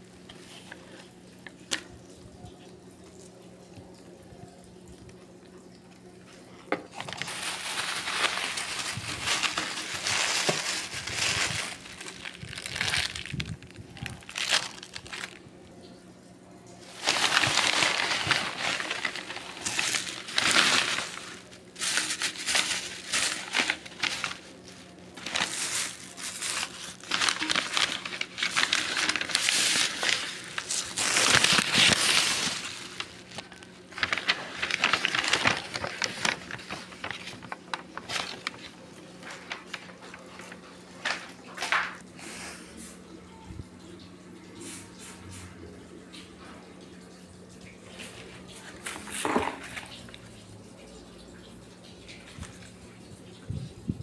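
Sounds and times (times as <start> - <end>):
plastic bags crinkling: 6.5 - 15.6, 16.8 - 42.0, 47.9 - 50.3.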